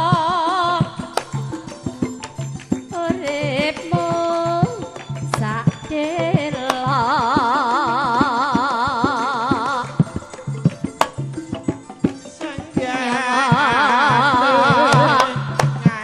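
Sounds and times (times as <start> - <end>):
woman singing through microphone: 0.0 - 1.6, 2.9 - 10.3, 12.5 - 16.0
hand drum strokes: 0.0 - 16.0
short percussive strikes: 10.0 - 12.9, 14.7 - 16.0.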